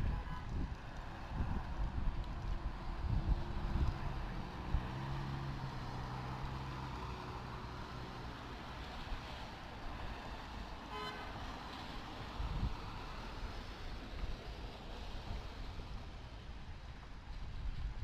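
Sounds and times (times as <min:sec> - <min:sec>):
car horn toot: 0:00.0 - 0:00.5, 0:10.9 - 0:11.3
road and engine noise: 0:00.0 - 0:18.0.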